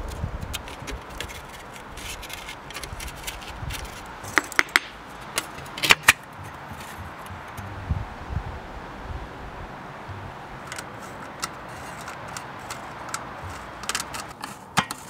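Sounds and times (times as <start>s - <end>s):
mica sheet crinkling: 0.0s - 7.0s, 10.7s - 15.0s
sharp clicks and snaps: 10.7s - 14.4s.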